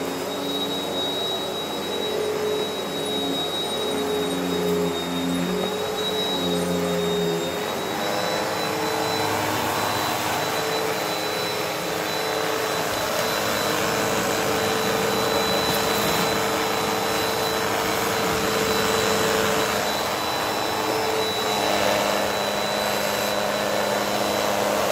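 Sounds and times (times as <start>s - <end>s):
vacuum cleaner running: 0.0s - 24.9s.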